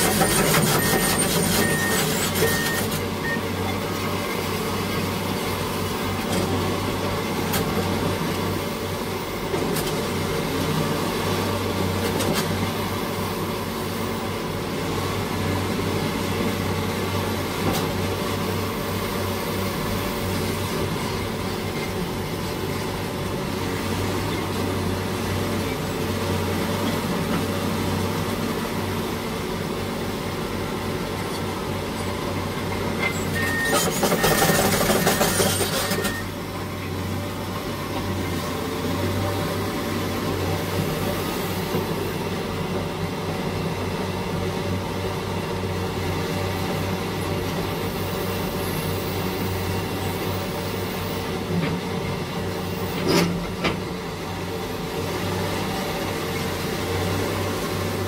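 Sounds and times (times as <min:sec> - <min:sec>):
short high beeps: 0:00.2 - 0:03.6, 0:33.2 - 0:36.3.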